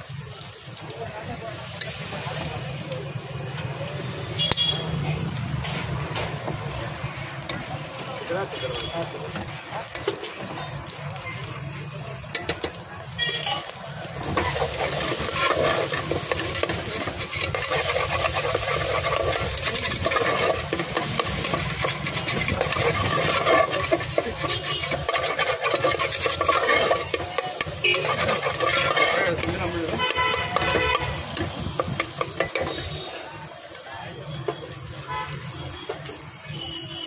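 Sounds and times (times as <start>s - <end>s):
food sizzling: 0.0s - 37.0s
spatula scraping metal pot: 14.2s - 32.9s.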